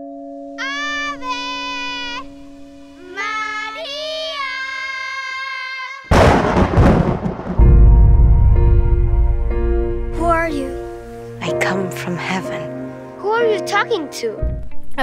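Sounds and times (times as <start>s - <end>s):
sudden loud crash: 6.1s - 10.1s
deep rumble: 6.1s - 11.0s
orchestral film music: 7.6s - 14.5s.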